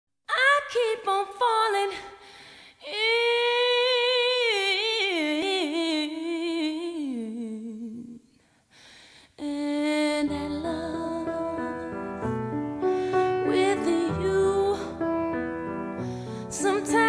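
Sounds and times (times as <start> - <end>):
woman singing unaccompanied: 0.3 - 2.1, 2.8 - 8.3, 9.4 - 12.4, 13.4 - 15.2, 16.4 - 17.0.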